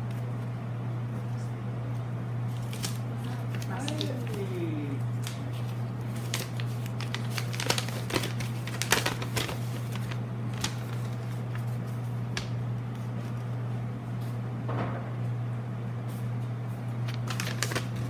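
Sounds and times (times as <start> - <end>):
steady low hum: 0.0 - 18.0
paper leaflet rustling: 2.5 - 13.4, 17.0 - 18.0.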